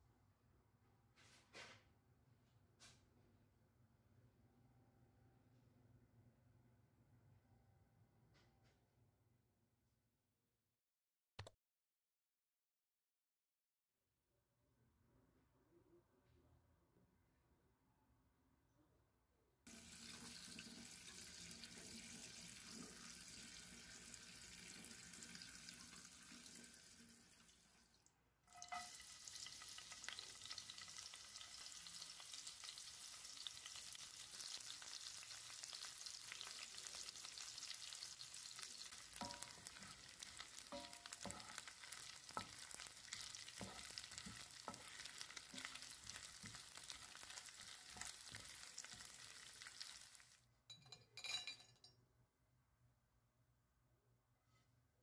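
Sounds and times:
fish frying in hot oil: 19.7 - 27.7, 28.5 - 50.4
tap water running: 19.7 - 50.4
spatula knocking and scraping pan: 28.6 - 30.2, 38.0 - 49.9.

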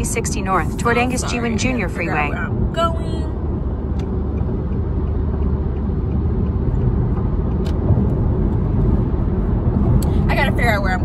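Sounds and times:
car road and engine rumble: 0.0 - 11.0.

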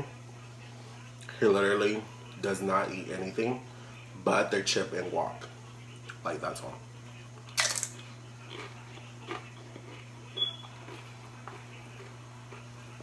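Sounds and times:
chewing with mouth noises: 7.4 - 13.0
chip crunch: 7.4 - 13.0.

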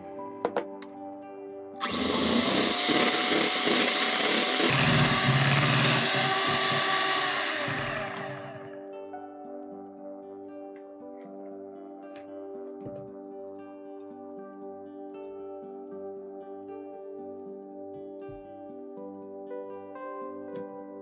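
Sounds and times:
electric hand mixer whipping: 1.8 - 8.8.

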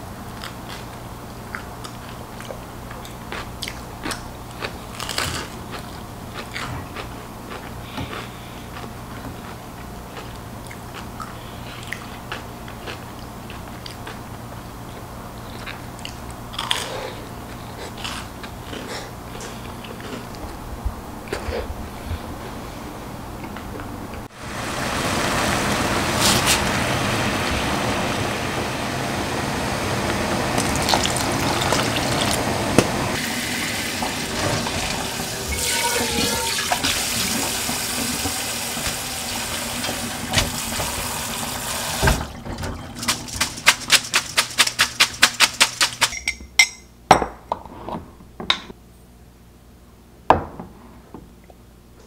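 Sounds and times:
tap water running: 24.2 - 44.7.

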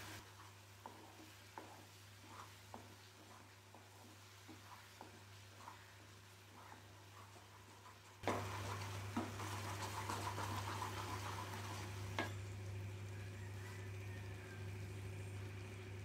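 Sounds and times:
food sizzling: 0.0 - 16.0
spatula scraping a pan: 0.2 - 8.6.

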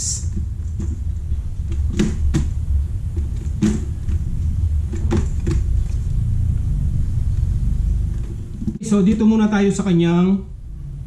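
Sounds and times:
steady low rumble: 0.0 - 11.0
helmet shell clicks and knocks: 3.2 - 4.2.

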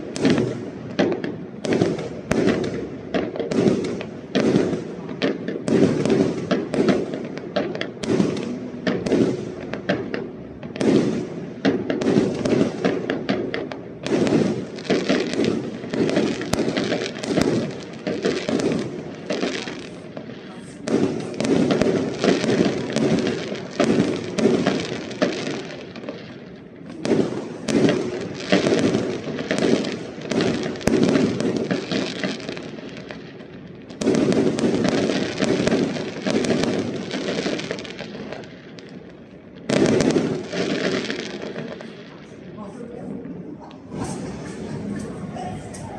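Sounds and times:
fireworks bursting and crackling: 0.0 - 45.9.

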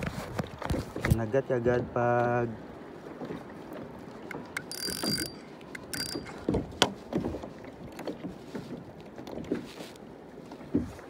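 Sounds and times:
fishing reel ratcheting buzz: 4.6 - 6.4.

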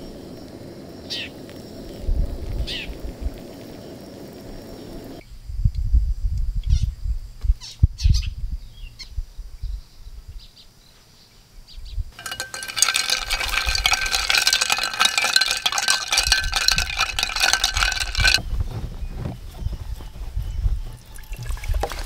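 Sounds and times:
ice clinking against glass: 12.2 - 18.4, 21.2 - 22.0
low rumbles: 12.2 - 22.0.

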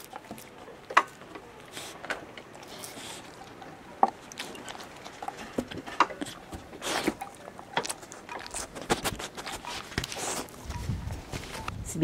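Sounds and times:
puppy licking and chewing: 0.0 - 11.8
rustle: 0.0 - 12.0.

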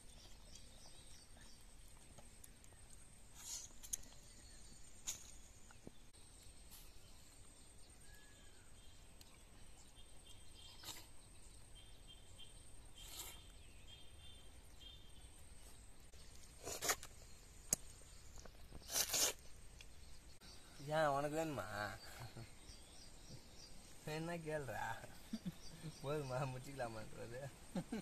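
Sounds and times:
faint bird chirps: 0.0 - 28.0
fruit being bitten and eaten: 12.9 - 13.7, 14.4 - 20.2.

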